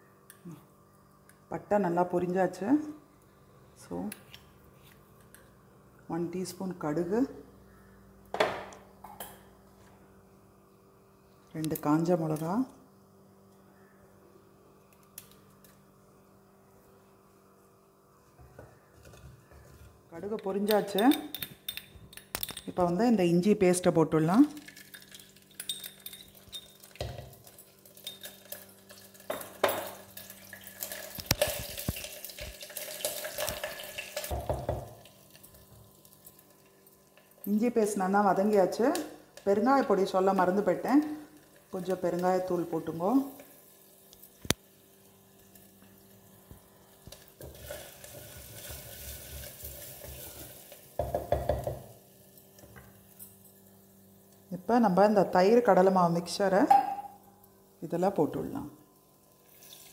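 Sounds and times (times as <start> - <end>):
spices sizzling in oil: 24.6 - 55.0, 59.0 - 59.9
paste sizzling in hot oil: 30.1 - 34.4, 47.0 - 51.0, 59.4 - 59.9.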